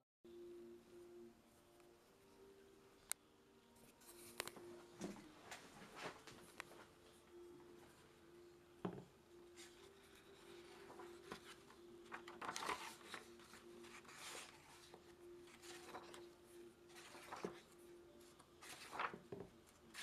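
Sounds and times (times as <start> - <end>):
paper pages rustling: 3.8 - 6.9, 9.6 - 20.0.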